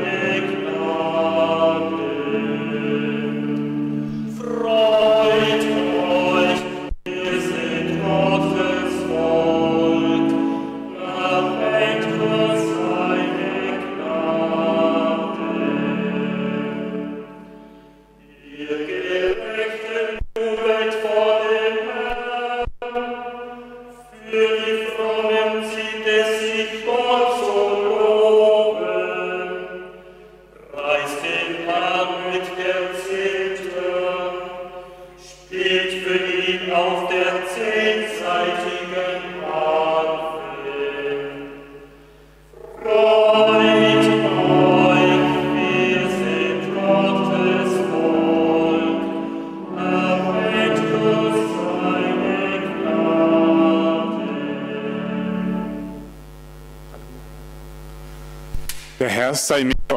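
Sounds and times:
lower voice chanting: 0:42.5 - 0:55.1.

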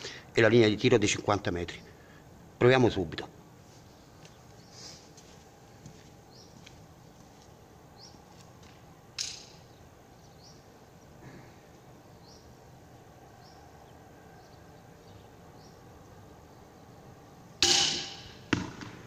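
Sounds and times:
small birds chirping: 0:03.8 - 0:05.3, 0:06.0 - 0:17.5.

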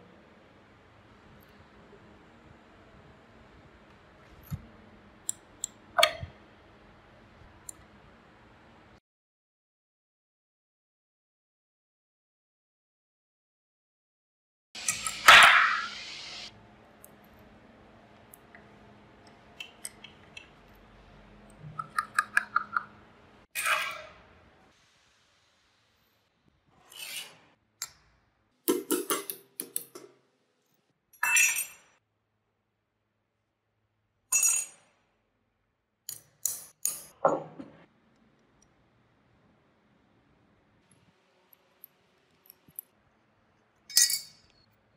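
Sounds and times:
metal lock parts clinking: 0:43.9 - 0:44.6.

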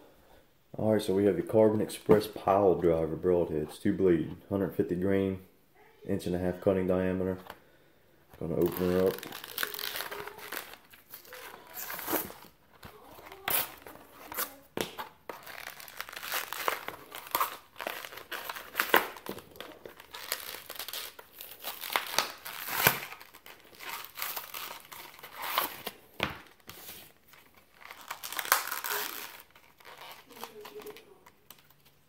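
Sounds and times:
wrapping crinkling: 0:08.4 - 0:32.0
cardboard package ripping: 0:08.5 - 0:31.4.

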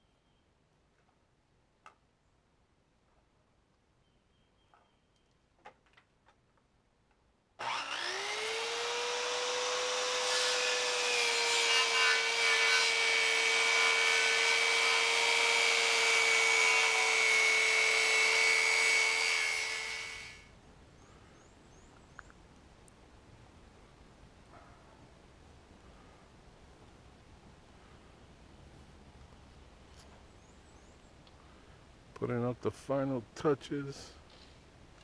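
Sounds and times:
circular saw cutting wood: 0:07.6 - 0:20.5.

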